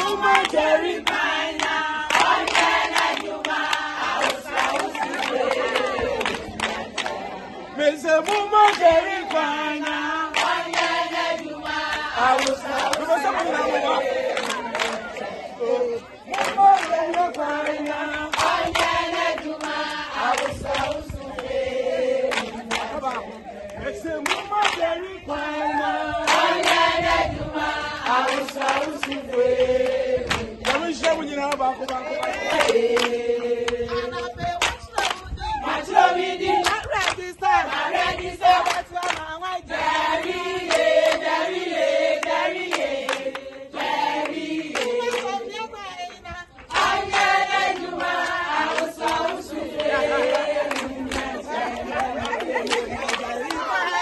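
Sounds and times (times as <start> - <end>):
hand claps: 0.0 - 7.2, 8.2 - 13.5, 14.3 - 15.3, 16.3 - 21.5, 22.3 - 25.0, 28.0 - 33.8, 34.6 - 35.3, 36.6 - 37.3, 38.5 - 39.4, 40.2 - 41.3, 42.2 - 45.4, 46.0 - 53.7
group of voices singing: 0.0 - 54.0.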